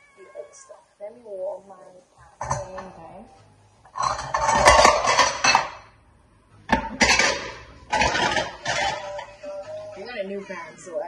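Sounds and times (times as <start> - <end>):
pots and pans clattering: 2.4 - 2.9, 3.9 - 5.9, 6.7 - 9.3.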